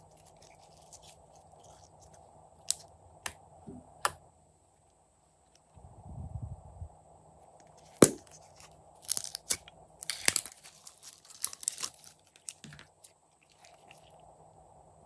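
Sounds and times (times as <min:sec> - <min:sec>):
sticky slime crackling: 0:08.0 - 0:14.1.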